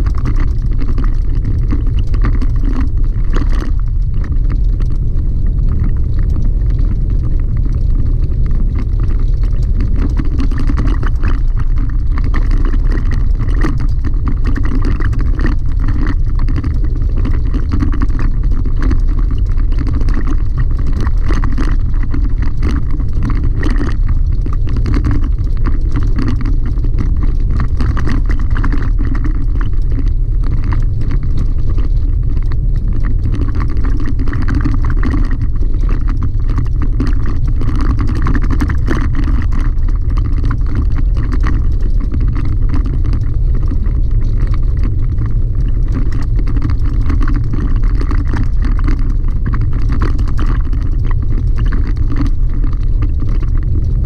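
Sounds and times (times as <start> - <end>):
gravel clicks and rattles: 0.0 - 54.0
tyre and engine rumble: 1.5 - 18.7.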